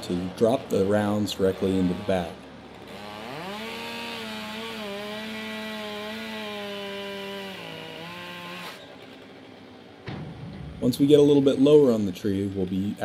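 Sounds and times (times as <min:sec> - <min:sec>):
chainsaw cutting: 0:00.0 - 0:10.0.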